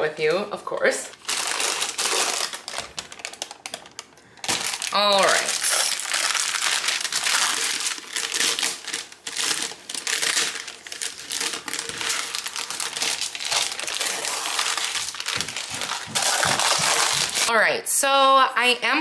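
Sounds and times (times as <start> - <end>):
parchment paper crinkling: 1.0 - 17.5.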